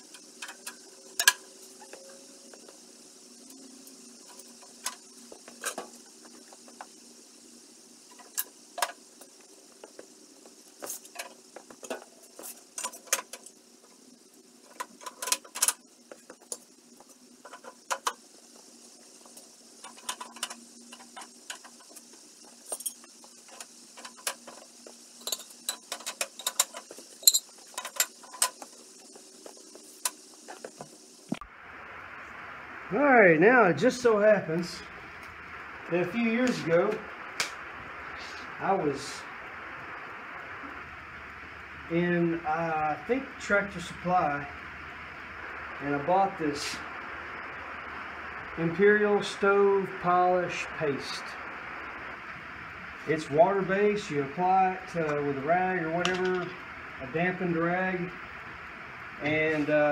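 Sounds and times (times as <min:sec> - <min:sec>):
metallic clinks of stove parts: 0:25.2 - 0:28.6.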